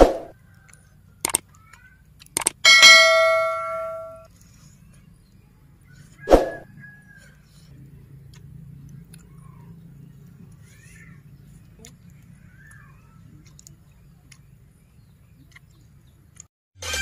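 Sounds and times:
mouse clicks: 0:01.2 - 0:01.4
bell ding: 0:02.7 - 0:04.3.

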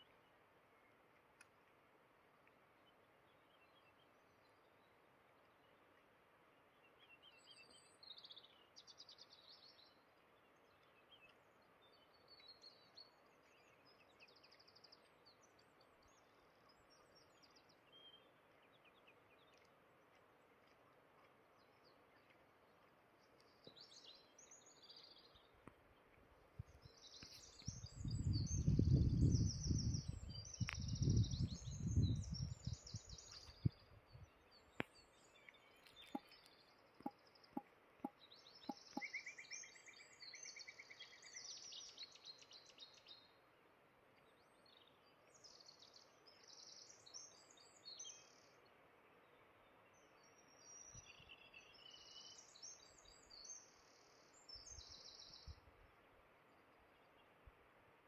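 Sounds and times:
birds chirping: 0:21.5 - 0:43.2.

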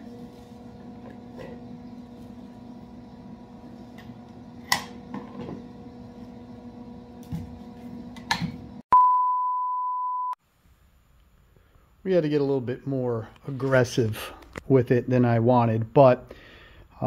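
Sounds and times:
test-tone beep: 0:08.9 - 0:10.4.

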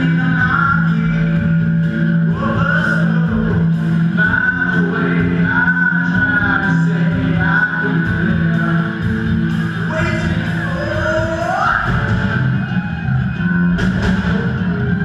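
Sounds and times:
person singing: 0:00.0 - 0:12.0
rock band playing loudly: 0:00.0 - 0:15.0.

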